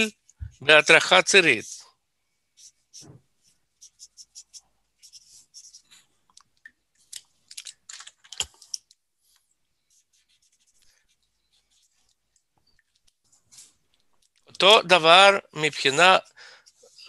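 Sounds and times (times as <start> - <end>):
marker drawing on paper: 2.4 - 6.2, 9.4 - 13.8.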